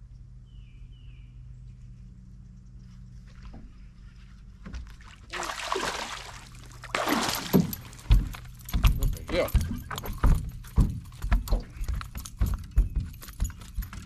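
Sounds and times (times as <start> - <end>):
steady low hum: 0.0 - 14.0
fish thudding against boat: 4.7 - 11.8
fish splashing and thrashing in water: 4.8 - 8.6.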